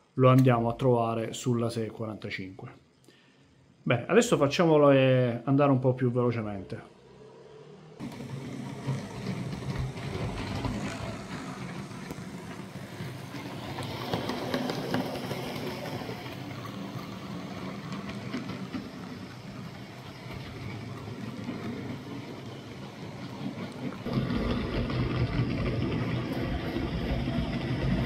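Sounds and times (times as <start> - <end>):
wheels rolling on rails: 7.0 - 28.0
model train motors whirring: 8.0 - 28.0.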